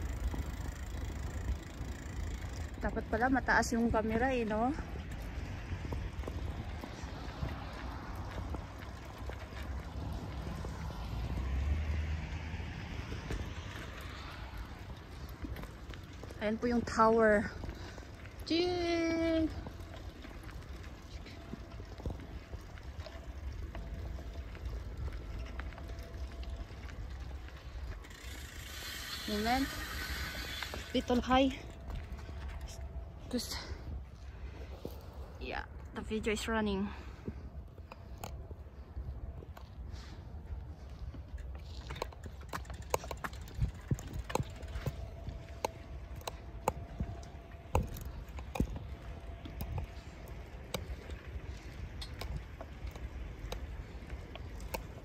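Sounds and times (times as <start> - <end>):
phone camera rattling on bicycle: 0.0 - 10.8, 19.4 - 32.9, 41.3 - 55.0
wind buffeting microphone: 0.0 - 55.0
faint clicks and rattles: 41.0 - 55.0.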